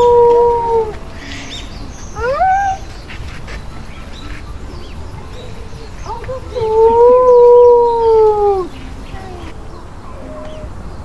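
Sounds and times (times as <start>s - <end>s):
dingo howling: 0.0s - 1.1s, 2.1s - 3.0s, 5.2s - 9.5s.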